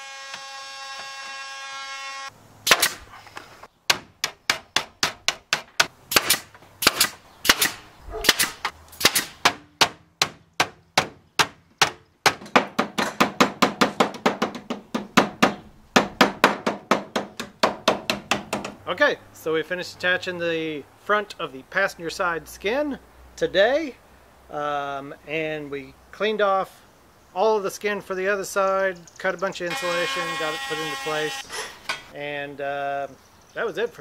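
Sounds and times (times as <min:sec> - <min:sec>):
pneumatic stapler firing: 0:02.6 - 0:03.0, 0:06.1 - 0:09.4.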